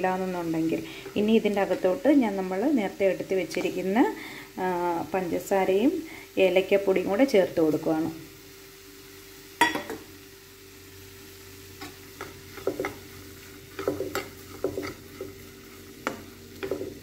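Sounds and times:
faint pan sizzle: 0:00.0 - 0:17.0
spoon clinking on pan: 0:09.6 - 0:10.0
spoon stirring in a pan: 0:11.8 - 0:17.0.

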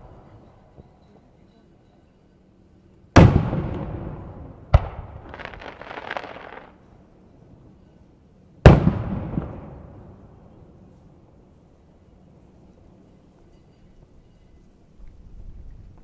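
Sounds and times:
firework shells booming: 0:03.2 - 0:06.8
firework crackling: 0:04.8 - 0:06.8.

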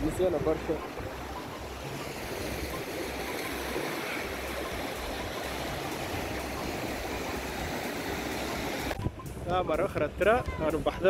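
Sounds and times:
waves breaking: 0:00.0 - 0:11.0
wind rumble on microphone: 0:04.3 - 0:11.0.

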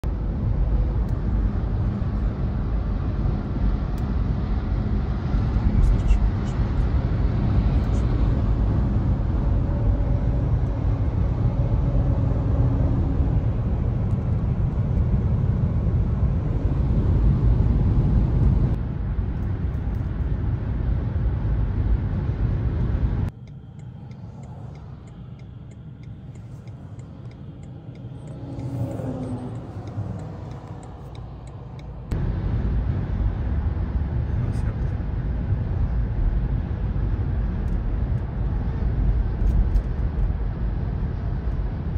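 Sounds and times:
car road noise rumble: 0:00.0 - 0:41.9.

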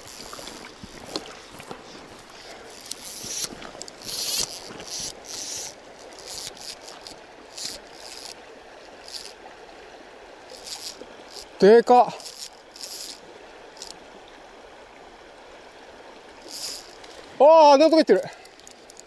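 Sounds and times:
fly reel rasping: 0:00.0 - 0:08.4, 0:09.0 - 0:09.4, 0:10.5 - 0:13.2, 0:13.8 - 0:14.0, 0:16.4 - 0:17.0
shallow river running: 0:00.0 - 0:19.0.

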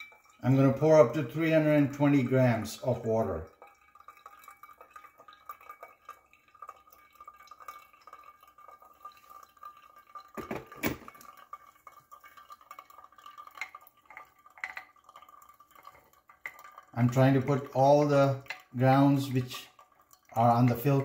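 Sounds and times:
water trickling onto coffee grounds: 0:00.0 - 0:21.0
kettle clunk on base: 0:10.4 - 0:11.2.

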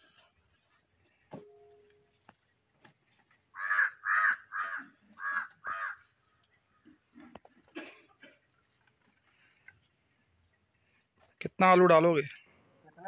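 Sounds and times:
crow cawing: 0:03.6 - 0:06.1.

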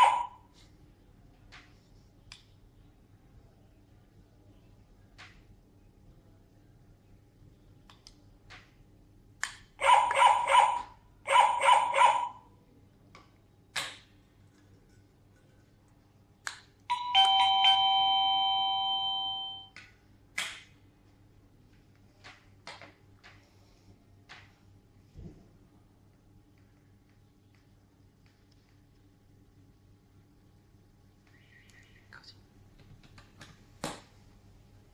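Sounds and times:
rapid doorbell chiming tones: 0:16.9 - 0:19.7
two-note ding-dong chime: 0:16.9 - 0:19.7.

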